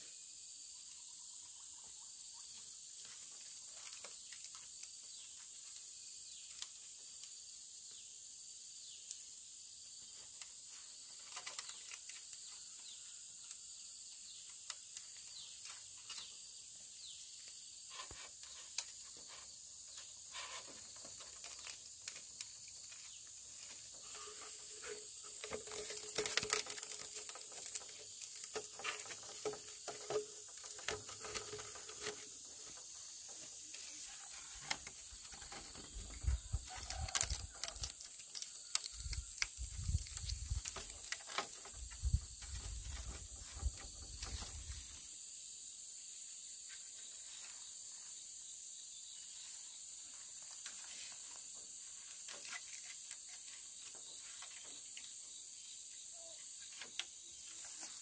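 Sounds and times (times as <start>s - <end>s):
insects chirring: 0.0s - 58.0s.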